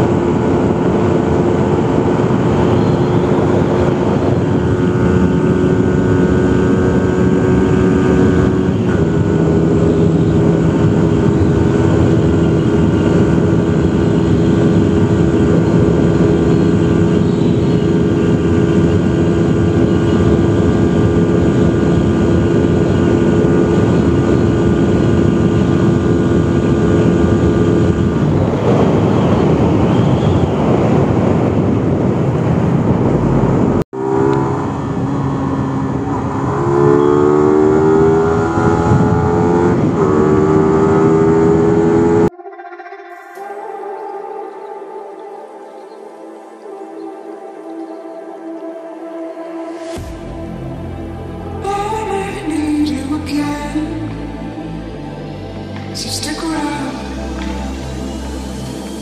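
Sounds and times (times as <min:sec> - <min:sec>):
wind rushing: 0:00.0 - 0:42.3, 0:46.3 - 0:59.0
motorcycle engine running: 0:00.0 - 0:42.4
road noise: 0:00.0 - 0:42.7, 0:43.4 - 0:59.0.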